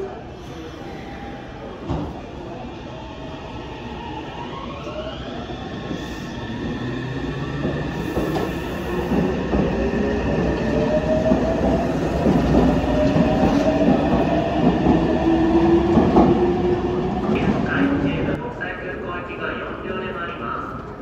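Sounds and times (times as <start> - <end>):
train wheels rumbling: 5.6 - 18.6.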